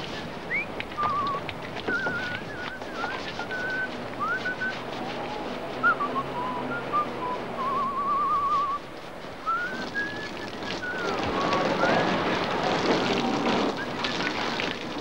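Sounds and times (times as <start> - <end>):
person whistling a tune: 0.1 - 8.8, 9.4 - 12.2, 13.7 - 14.8
hose spraying water: 7.7 - 15.0.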